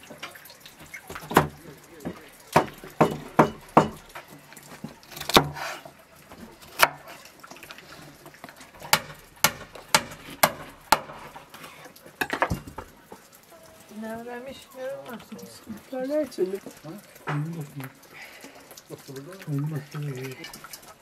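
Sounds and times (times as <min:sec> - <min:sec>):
sharp wooden knocks: 0:00.8 - 0:04.2, 0:08.8 - 0:11.3.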